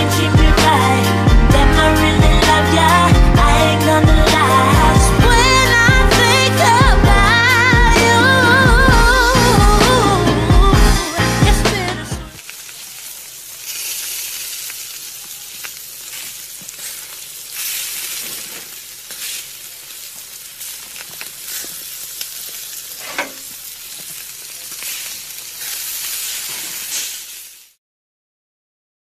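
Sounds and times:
meat sizzling on a grill: 12.3 - 27.8
crackles and pops: 12.4 - 27.8.

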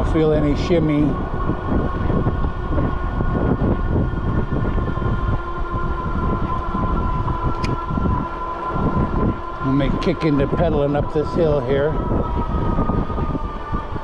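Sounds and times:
electric motor whine: 0.0 - 14.0
wind buffeting microphone: 0.0 - 14.0.

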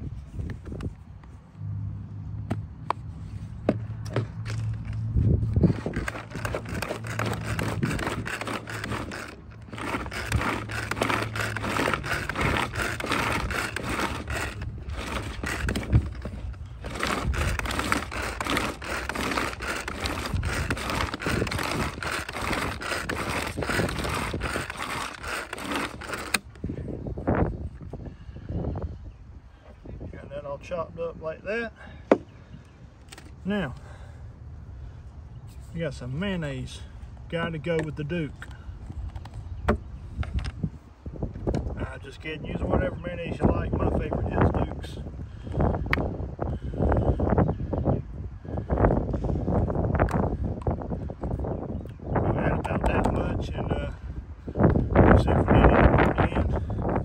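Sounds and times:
low motor hum: 0.0 - 27.8
food chopper blades clattering: 5.5 - 26.6.

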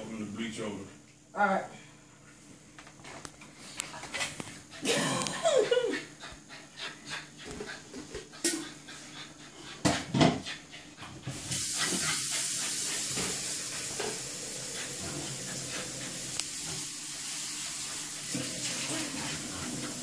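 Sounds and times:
puppy panting: 5.6 - 20.0
knocks and thump: 9.8 - 10.4
steady hiss: 10.5 - 20.0.

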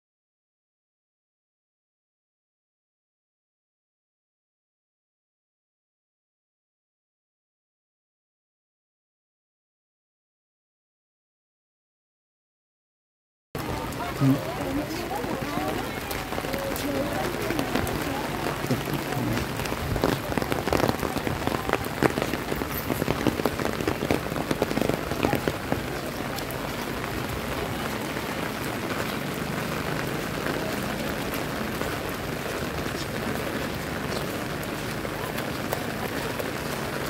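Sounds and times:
heavy rain hissing: 13.6 - 37.0
sharp close raindrop hits: 13.6 - 37.0.

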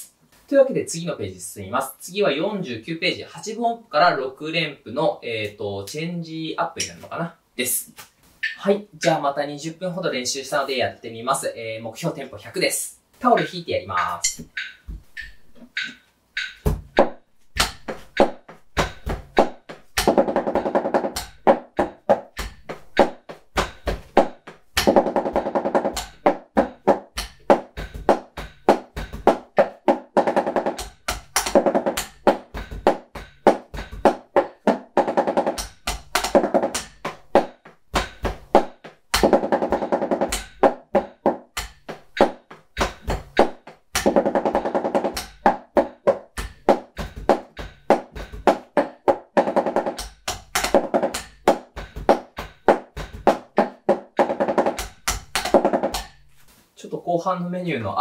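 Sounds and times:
drumsticks on damped practice pad: 8.4 - 9.2, 13.4 - 56.2.

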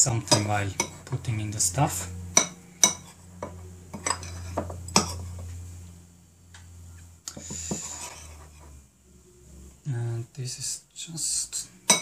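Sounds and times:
low steady hum: 0.0 - 12.0
metal spoon scraping ceramic bowl: 0.2 - 1.2, 1.9 - 5.5, 7.5 - 8.8.

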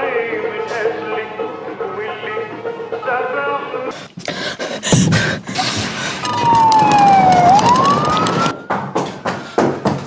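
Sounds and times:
police siren wailing: 6.2 - 8.9.

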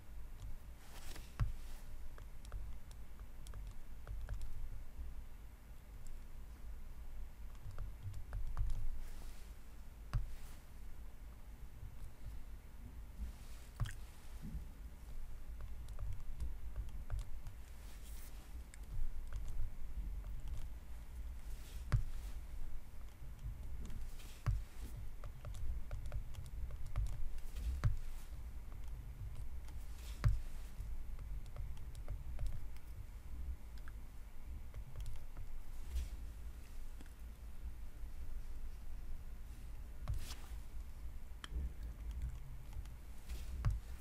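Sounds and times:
low steady rumble: 0.0 - 44.0
stylus tapping on tablet screen: 0.4 - 4.7, 7.5 - 9.4, 10.1 - 10.6, 13.2 - 33.1, 34.7 - 35.7, 40.0 - 40.7, 41.4 - 44.0.

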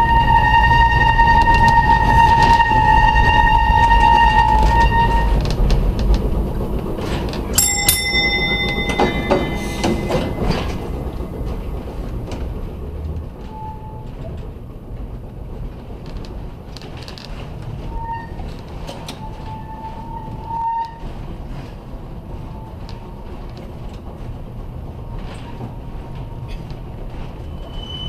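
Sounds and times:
wheels squealing on curve: 0.0 - 5.8, 27.1 - 28.0
wheels rumbling and clicking on rails: 0.0 - 28.0.

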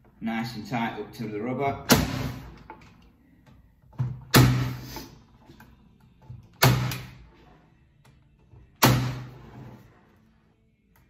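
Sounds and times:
nail gun firing: 1.9 - 2.4, 4.3 - 4.8, 6.6 - 7.2, 8.8 - 9.3.

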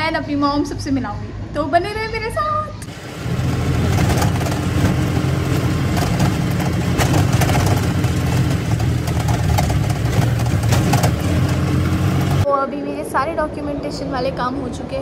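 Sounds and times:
road noise: 2.7 - 12.7
auto-rickshaw engine running: 2.8 - 12.5.

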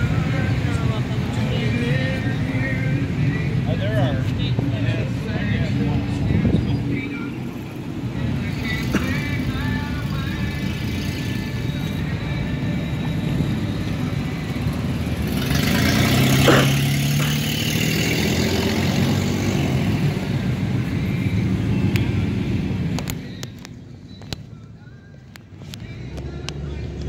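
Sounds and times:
cars driving past: 0.0 - 23.2
car engine rumble passing close: 13.5 - 21.6.

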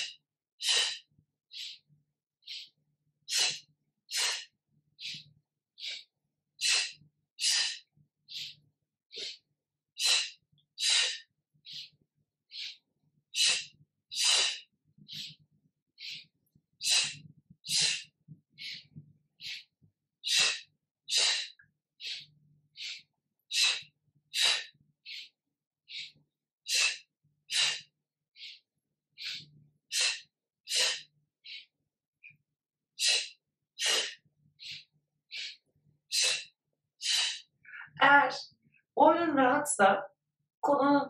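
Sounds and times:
forceful yoga breathing: 0.0 - 1.8, 2.5 - 5.2, 5.8 - 8.5, 9.1 - 9.4, 10.0 - 11.9, 12.6 - 15.4, 16.0 - 25.3, 26.7 - 28.6, 29.2 - 31.7, 33.0 - 38.0.

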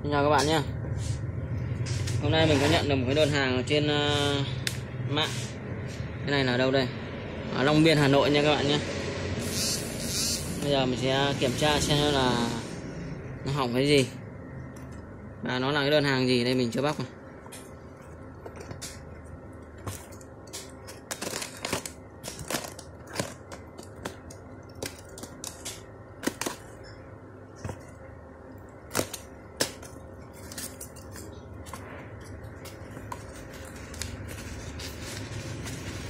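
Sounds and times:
low steady hum: 0.0 - 36.0
cardboard and tape crackling: 17.5 - 27.0, 28.7 - 36.0.

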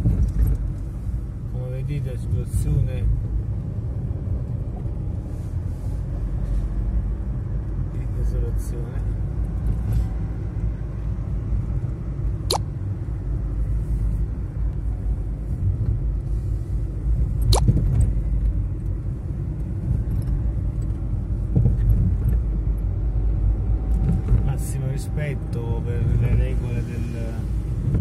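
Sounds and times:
car road and engine rumble: 0.0 - 28.0.

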